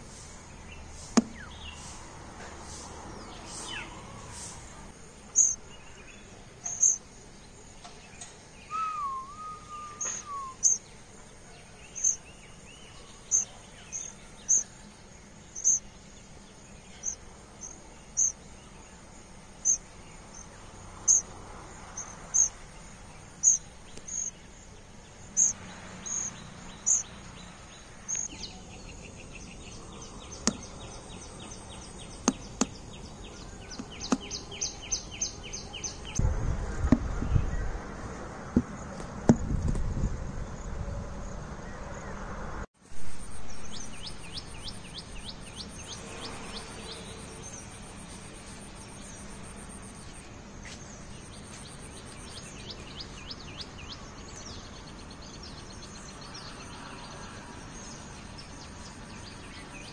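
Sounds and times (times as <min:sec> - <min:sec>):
nestlings begging peeps: 0:00.0 - 0:05.8, 0:06.6 - 0:07.1, 0:08.6 - 0:10.9, 0:11.9 - 0:14.7, 0:15.5 - 0:18.4, 0:19.6 - 0:24.5, 0:25.2 - 0:36.2
wavering whistled note: 0:08.7 - 0:10.7.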